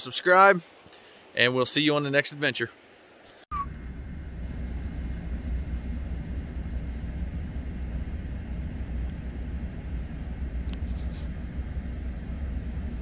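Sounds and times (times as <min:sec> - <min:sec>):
steady low rumble: 0:03.5 - 0:13.0.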